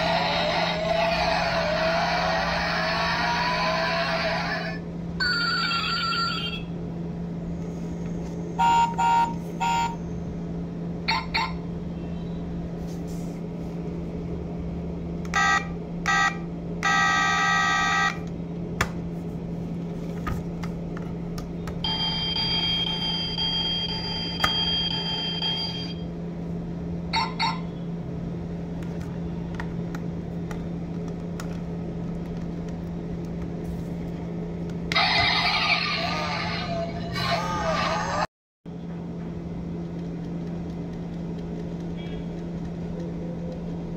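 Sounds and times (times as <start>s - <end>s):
electronic horn beeps: 8.6s - 10.0s, 15.4s - 18.2s.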